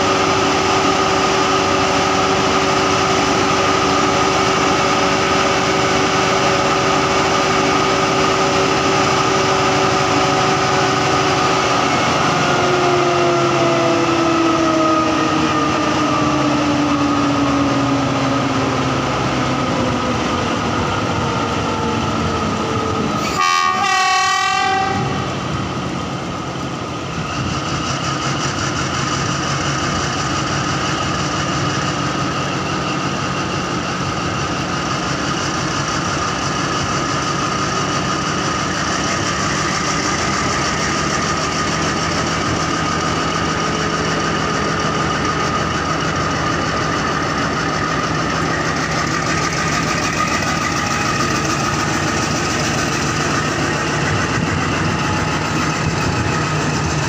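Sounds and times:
diesel locomotive engine whining: 0.0 - 57.0
locomotive horn: 23.2 - 25.3.

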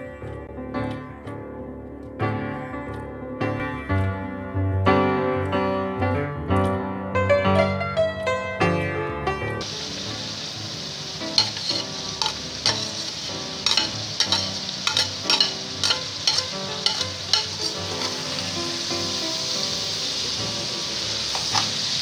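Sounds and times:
vegetables sizzling in a pan: 9.6 - 22.0
metal spatula scraping a pan: 11.3 - 18.6.

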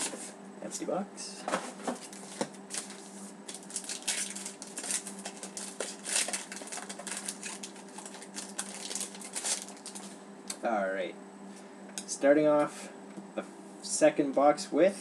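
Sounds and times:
foil wrapper crinkling: 2.0 - 10.2.

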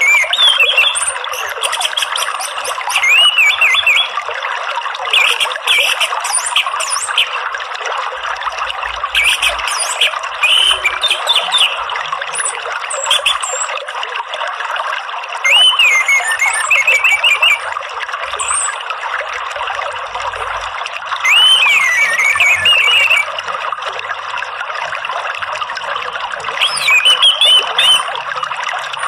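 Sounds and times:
thrush singing whistled phrases: 0.0 - 4.2, 5.1 - 7.4, 9.2 - 13.8, 15.4 - 17.7, 18.3 - 18.8, 21.2 - 23.4, 26.6 - 28.2
running water: 0.0 - 29.0.

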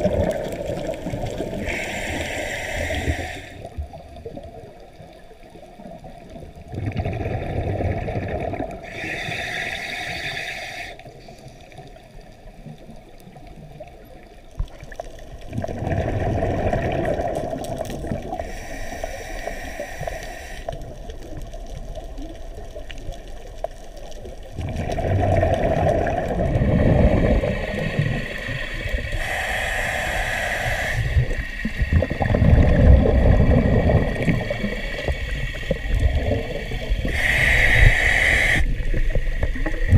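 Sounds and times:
bubbling exhalations underwater: 0.0 - 1.9, 6.6 - 8.9, 15.4 - 18.4, 24.5 - 39.9
regulator inhalation hiss: 1.5 - 3.7, 8.8 - 11.1, 18.4 - 20.8, 27.3 - 32.3, 34.0 - 39.9.

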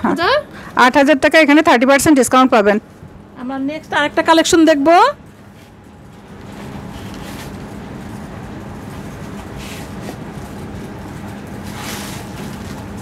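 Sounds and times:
constant hum: 0.0 - 13.0
fabric rustling: 4.9 - 13.0.

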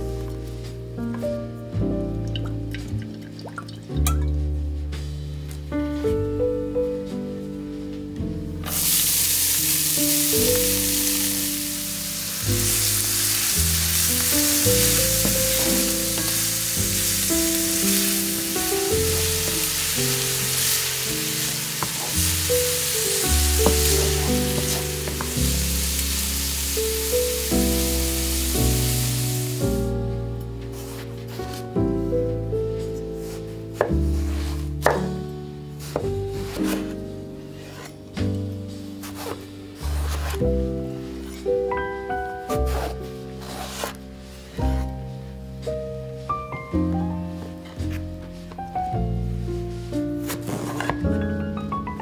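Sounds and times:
onion sizzling in a pan: 8.6 - 30.0.

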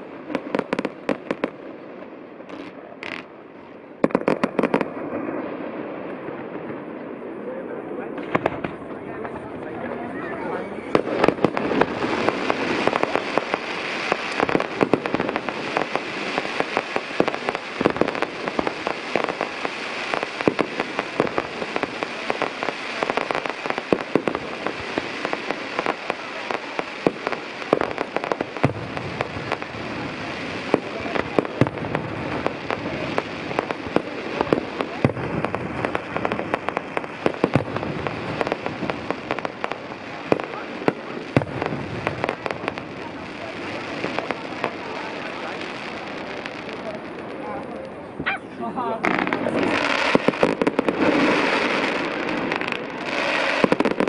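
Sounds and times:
fireworks bursting and crackling: 0.0 - 54.0
sharp firework bangs: 8.2 - 9.4, 10.9 - 47.4, 49.0 - 54.0.

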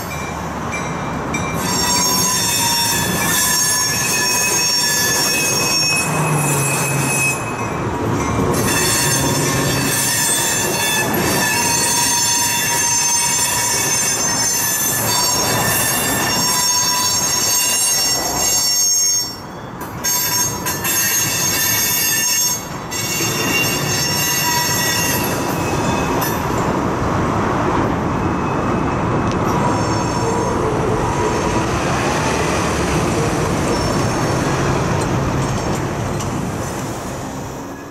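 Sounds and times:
train wheels squealing: 0.0 - 26.7, 28.3 - 30.8, 33.6 - 37.9
road traffic noise: 0.0 - 37.9
rumble of train wheels: 0.0 - 37.9.

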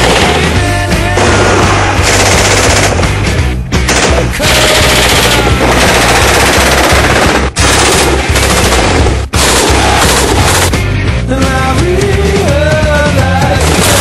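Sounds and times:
machine guns firing: 0.0 - 3.2, 3.8 - 10.8, 13.5 - 14.0
heavy rock music: 0.0 - 14.0.

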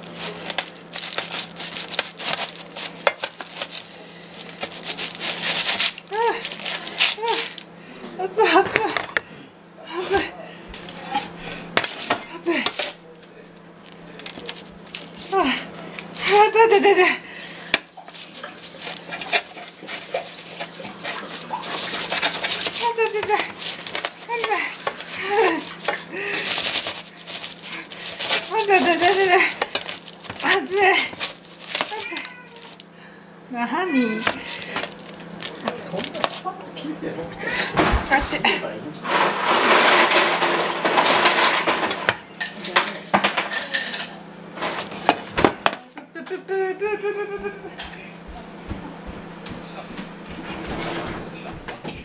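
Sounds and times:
knife crunching through crust: 0.0 - 7.7, 13.7 - 16.5, 17.6 - 32.9, 34.2 - 36.5
cat meowing: 31.8 - 32.8, 33.8 - 34.6
knife clinking on metal tray: 42.4 - 44.2.

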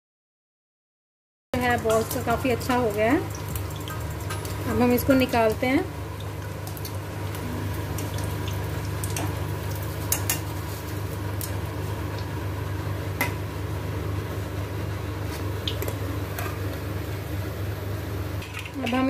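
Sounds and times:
hot oil sizzling: 1.6 - 19.0.

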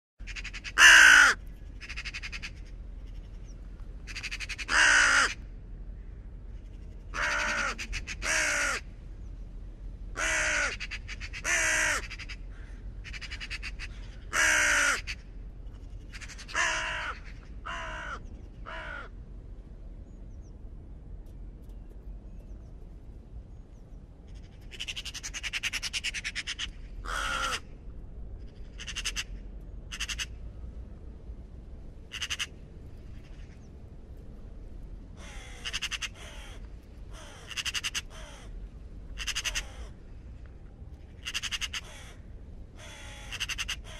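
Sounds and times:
raven croaking: 0.2 - 5.5, 7.1 - 8.9, 10.1 - 19.2, 24.3 - 27.8, 28.5 - 30.4, 32.0 - 33.6, 35.2 - 40.1, 41.1 - 43.9
raven rasping call: 0.2 - 5.5, 7.1 - 8.9, 10.1 - 19.2, 24.3 - 27.8, 28.5 - 30.4, 32.1 - 33.6, 35.2 - 40.0, 41.2 - 43.9.

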